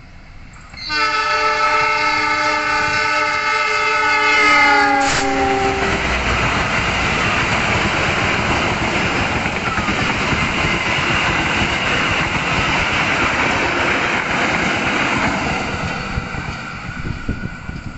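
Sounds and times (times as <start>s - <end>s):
train wheels rumbling on rails: 0.0s - 17.9s
locomotive air horn chord: 0.8s - 6.2s.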